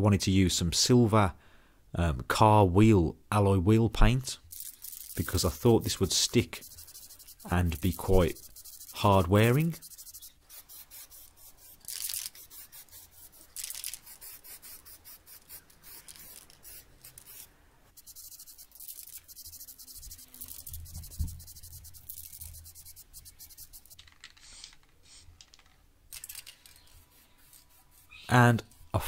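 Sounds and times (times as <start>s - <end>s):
spray paint can hissing: 4.5s - 25.2s.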